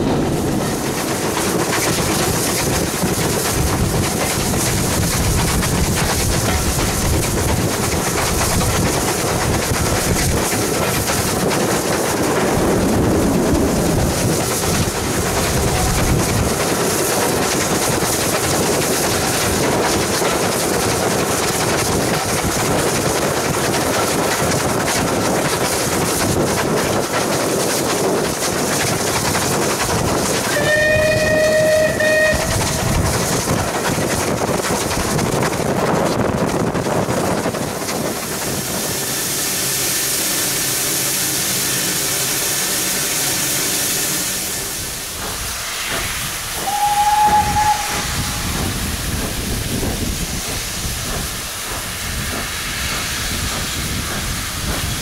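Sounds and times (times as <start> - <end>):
steam hissing: 0.0 - 55.0
steam locomotive whistle: 30.4 - 32.9, 46.5 - 48.6.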